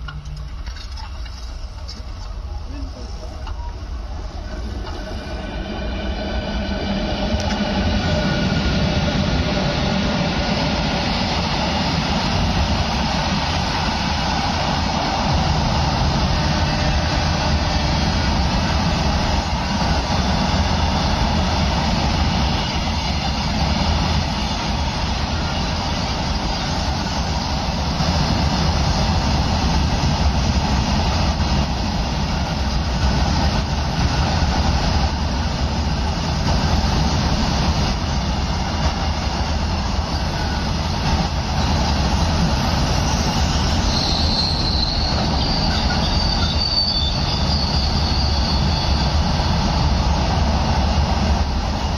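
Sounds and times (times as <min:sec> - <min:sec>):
train wheels rumbling on rails: 0:00.0 - 0:51.9
high-pitched squeal: 0:39.8 - 0:51.9.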